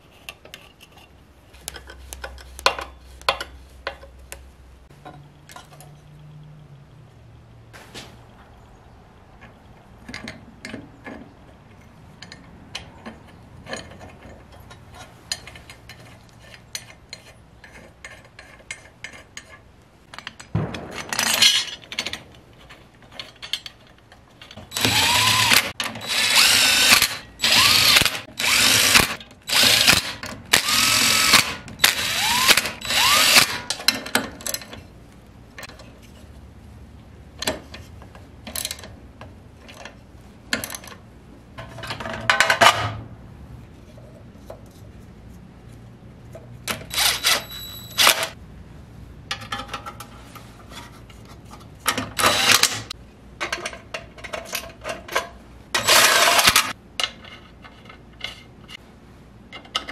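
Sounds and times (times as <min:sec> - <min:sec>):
cordless power driver whining: 0:24.7 - 0:33.6.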